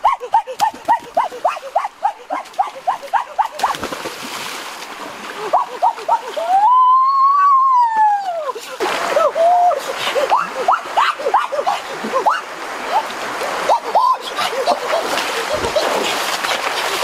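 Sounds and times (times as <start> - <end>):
splash into river: 3.6 - 5.5, 14.9 - 17.0
long rising and falling cry: 5.4 - 8.6.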